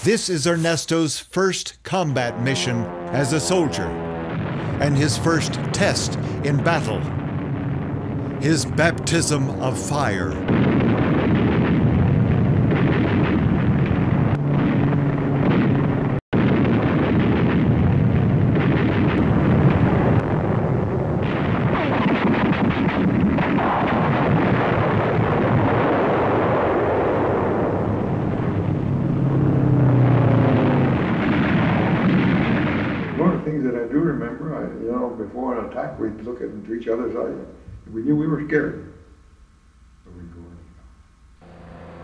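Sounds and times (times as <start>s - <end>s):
explosions: 2.0s - 33.5s, 41.4s - 42.0s.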